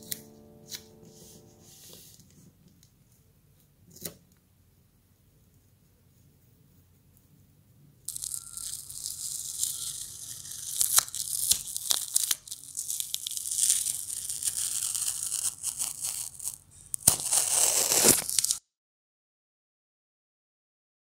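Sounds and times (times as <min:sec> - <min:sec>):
tape peeling off paper: 0:08.1 - 0:18.6.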